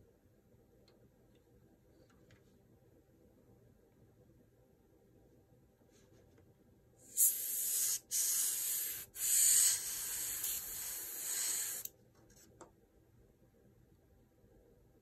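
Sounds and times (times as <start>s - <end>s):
airbrush spraying hiss: 7.1s - 11.9s.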